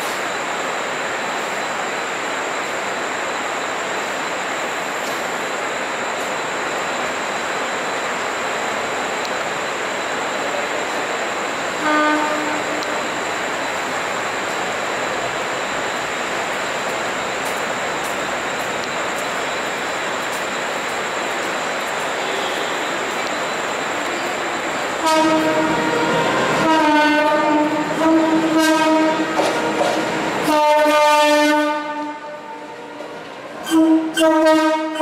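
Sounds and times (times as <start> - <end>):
train horn blast: 11.7 - 13.2, 22.2 - 23.1, 25.0 - 35.0.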